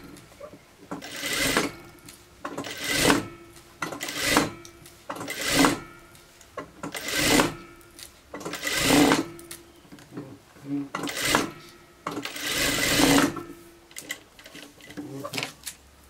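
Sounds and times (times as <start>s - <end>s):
sewing machine stitching: 1.0s - 1.8s, 2.6s - 3.3s, 4.0s - 4.6s, 5.2s - 5.8s, 6.9s - 7.6s, 8.5s - 9.4s, 11.0s - 14.7s.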